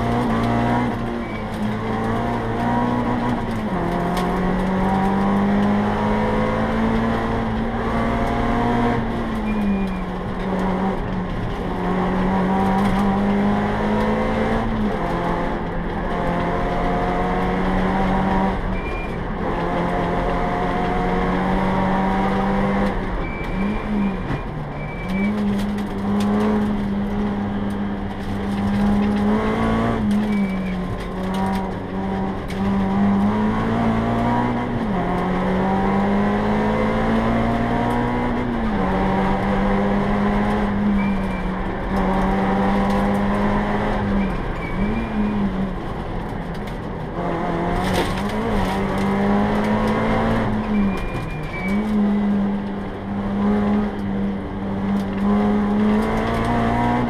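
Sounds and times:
rally car engine revving: 0:00.0 - 0:57.0
high-pitched squeaks: 0:23.1 - 0:25.8, 0:30.1 - 0:31.1, 0:44.1 - 0:45.5, 0:50.6 - 0:52.0.

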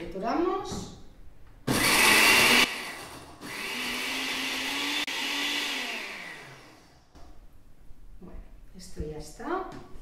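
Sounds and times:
blender motor running: 0:01.7 - 0:07.0.

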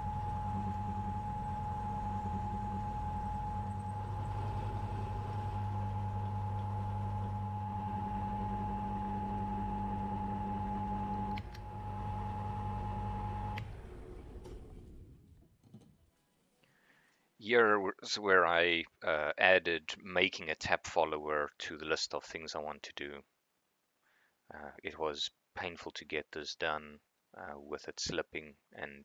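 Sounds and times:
milling machine spindle hum and whine: 0:00.0 - 0:15.0.

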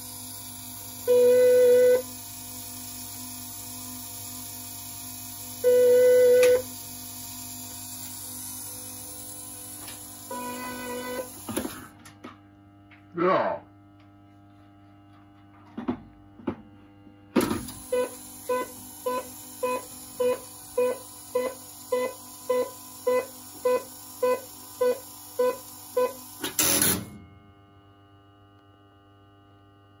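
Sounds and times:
pulsed signalling tone beeps: 0:05.6 - 0:06.6.

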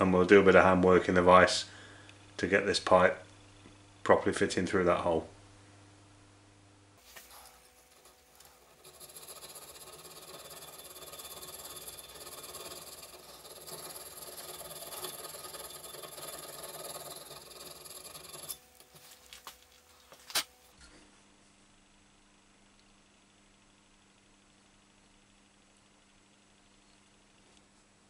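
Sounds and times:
file rasping on brass: 0:07.1 - 0:18.8.

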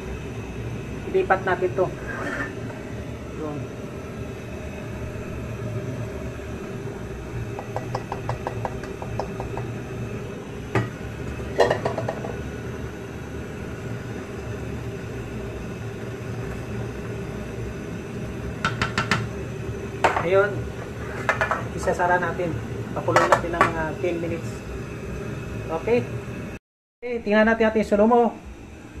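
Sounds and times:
steady low hum: 0:00.0 - 0:29.0
metal cookware knocking: 0:07.6 - 0:09.7, 0:10.7 - 0:12.4, 0:18.6 - 0:19.3.

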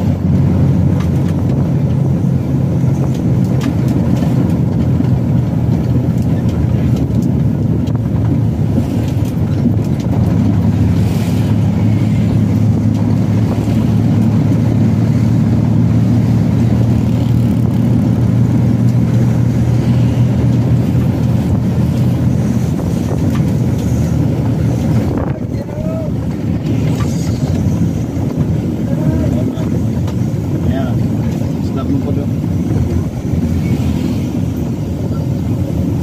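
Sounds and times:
truck engine running: 0:00.0 - 0:36.0
wind noise: 0:00.0 - 0:36.0.

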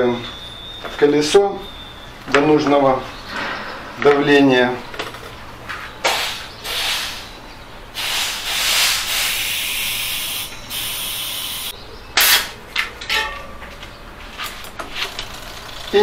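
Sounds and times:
compressed air hissing into tyre: 0:06.0 - 0:12.5.

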